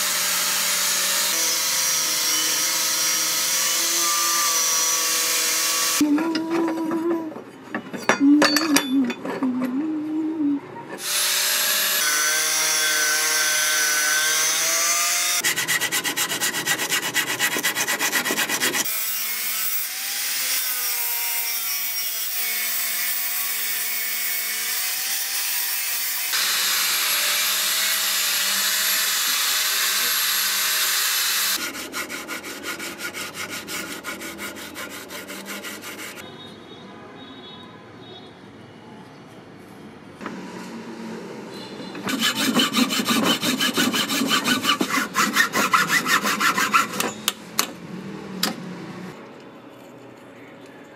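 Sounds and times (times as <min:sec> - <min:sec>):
angle grinder grinding steel: 0:00.0 - 0:07.2, 0:11.0 - 0:36.2, 0:42.0 - 0:47.3
file rasping on blade: 0:11.0 - 0:19.8, 0:27.8 - 0:36.2, 0:42.0 - 0:47.2.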